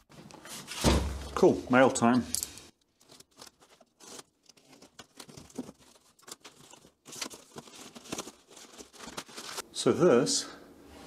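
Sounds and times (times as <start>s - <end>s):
plastic wrapping crinkling and tearing: 2.7s - 9.6s.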